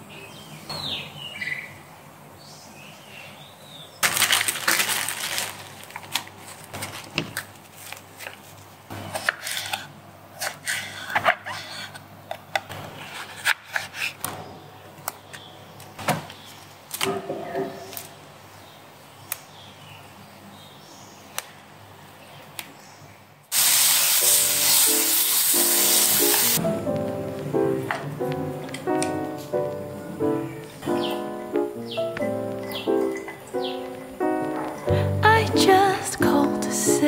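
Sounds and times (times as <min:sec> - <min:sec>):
food sizzling in a wok: 0:23.5 - 0:26.6
gentle background music: 0:24.5 - 0:37.0.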